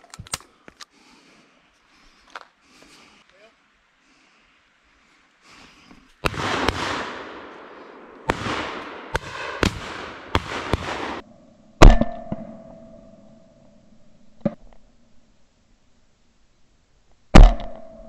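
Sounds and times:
shotgun shots: 6.2s - 11.2s.

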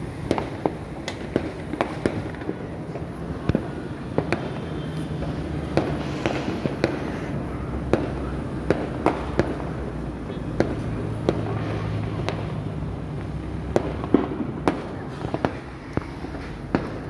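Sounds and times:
firework bangs: 0.0s - 17.0s
rumble of explosions: 0.1s - 17.0s.

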